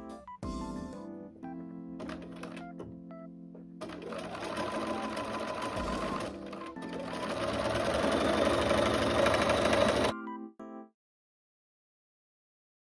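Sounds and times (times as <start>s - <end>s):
sewing machine stitching: 2.0s - 2.8s, 3.8s - 10.1s.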